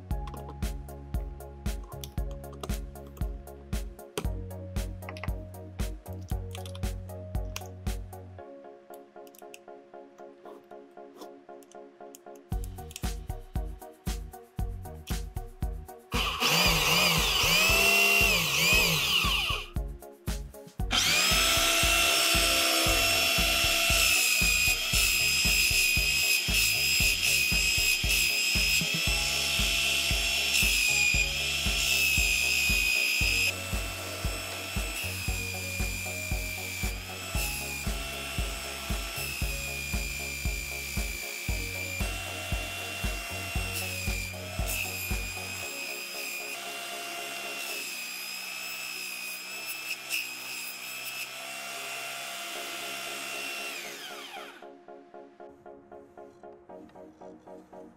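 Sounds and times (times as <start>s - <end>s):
drum sander motor whining: 16.1s - 19.7s, 20.9s - 54.6s.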